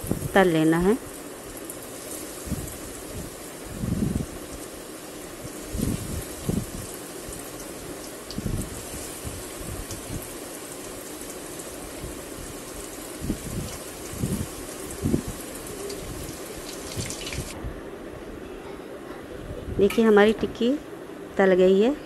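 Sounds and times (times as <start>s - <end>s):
deep-frying sizzle and crackle: 0.0s - 17.6s.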